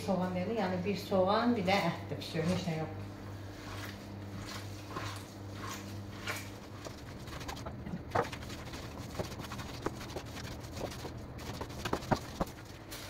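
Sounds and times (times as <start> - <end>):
hands squelching minced meat: 3.5 - 13.0.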